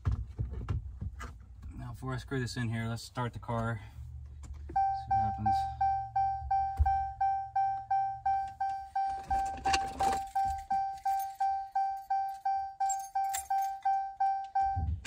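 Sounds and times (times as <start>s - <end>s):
dashboard warning chime dinging: 4.7s - 15.0s.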